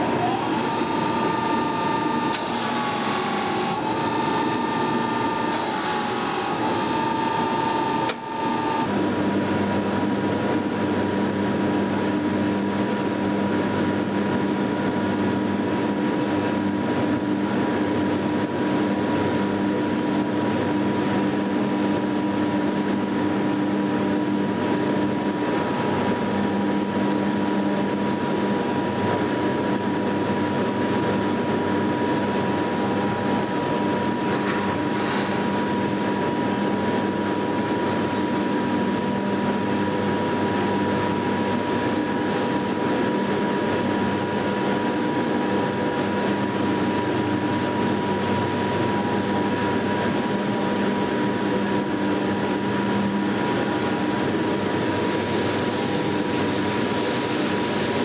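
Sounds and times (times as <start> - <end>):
industrial furnace drone: 0.0 - 58.0.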